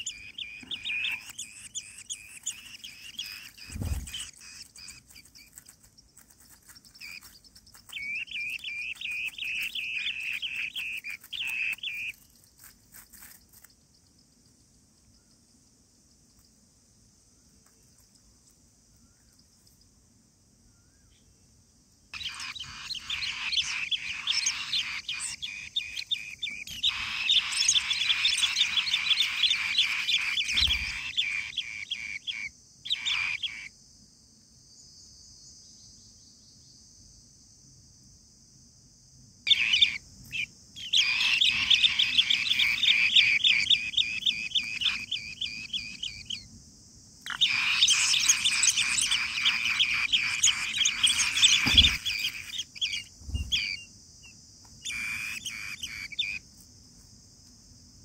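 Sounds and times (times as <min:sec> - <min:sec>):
nestlings chirping: 0:00.0 - 0:15.6, 0:22.2 - 0:33.7, 0:39.5 - 0:46.5, 0:47.2 - 0:56.8.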